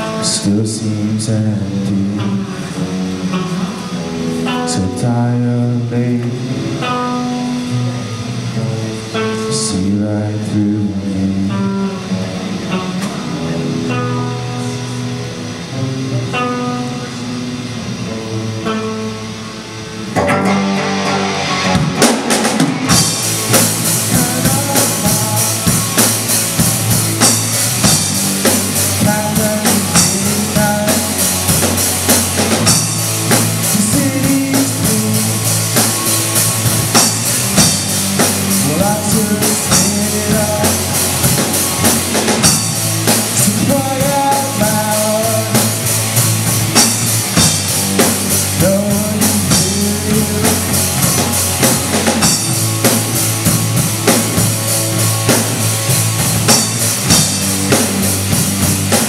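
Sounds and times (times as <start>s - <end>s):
electric guitar: 0.0s - 59.0s
rock band playing: 0.0s - 59.0s
drum fill: 20.0s - 59.0s.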